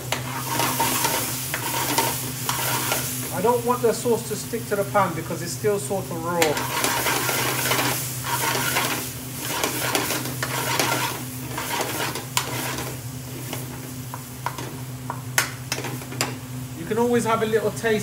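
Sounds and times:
sauce sizzling in a pan: 0.0 - 5.2, 5.8 - 16.8
metal spoon stirring and scraping: 0.1 - 3.1, 6.4 - 13.5.

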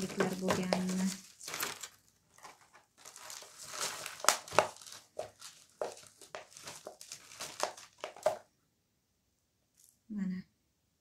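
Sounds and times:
potting mix spilling: 0.0 - 8.4
plastic cup crinkling: 0.0 - 8.5.

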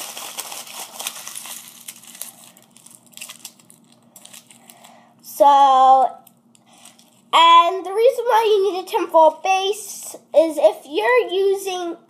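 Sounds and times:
tinfoil crumpling: 0.0 - 5.0, 6.2 - 7.4.

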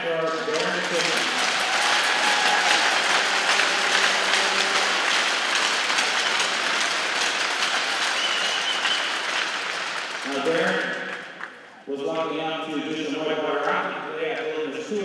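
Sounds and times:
crowd applauding: 0.0 - 11.7.

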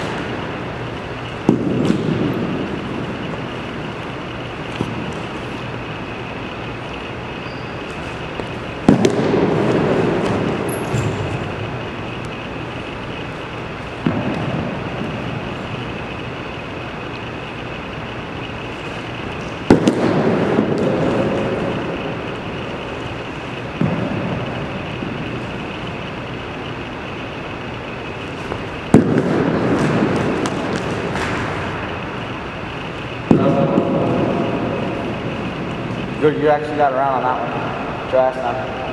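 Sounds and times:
steady background hiss: 0.0 - 38.9
baseballs smacking into catcher's gear: 28.5 - 31.9.

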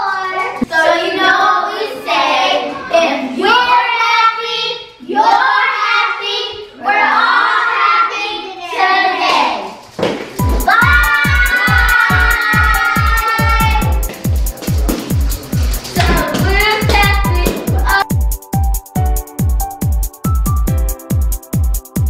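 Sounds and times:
children singing in unison: 0.7 - 3.8, 5.2 - 9.5, 10.9 - 14.0.

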